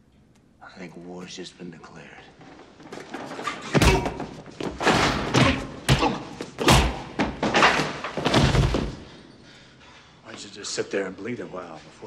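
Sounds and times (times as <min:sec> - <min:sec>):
heavy punches landing: 0:03.8 - 0:09.0.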